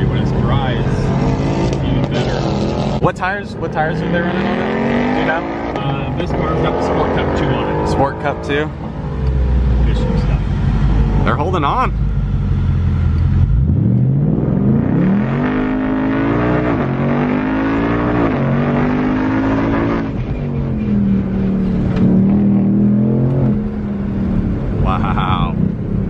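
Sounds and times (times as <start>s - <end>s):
car engine accelerating: 0.0s - 26.0s.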